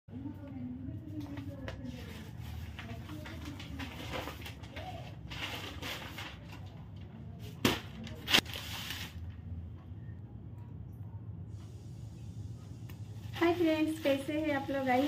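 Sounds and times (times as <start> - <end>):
newspaper rustling: 1.2 - 6.8, 7.6 - 9.4.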